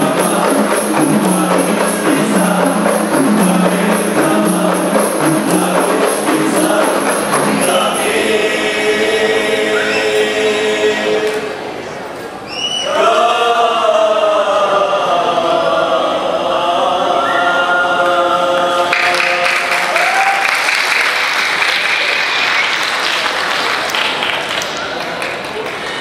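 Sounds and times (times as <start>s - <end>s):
boys singing a long note: 0.0s - 11.7s, 12.8s - 20.2s
audience applause: 18.9s - 26.0s.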